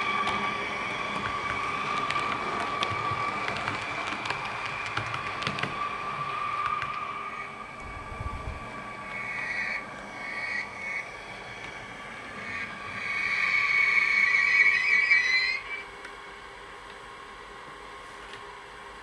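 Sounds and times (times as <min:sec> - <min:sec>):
wheels clicking over rail joints: 0:00.0 - 0:07.1
model train whine: 0:00.0 - 0:19.0.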